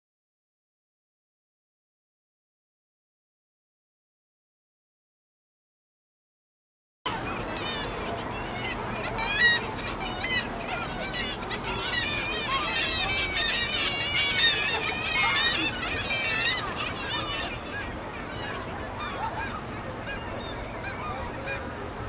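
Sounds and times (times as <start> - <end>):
gulls calling: 7.1 - 22.0.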